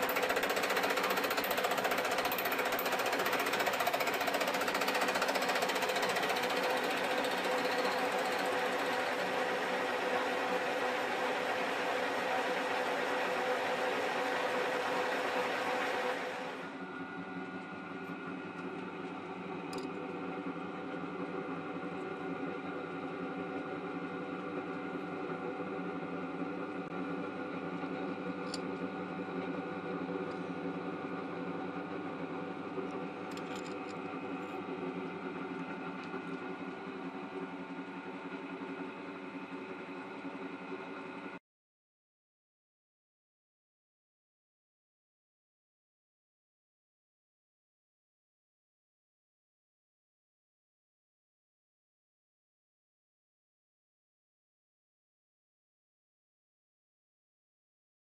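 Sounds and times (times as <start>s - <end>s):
milling machine humming and whining: 0.0s - 41.4s.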